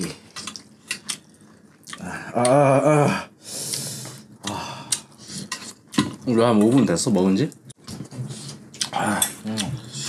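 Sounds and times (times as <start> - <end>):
man groaning: 2.0 - 3.3.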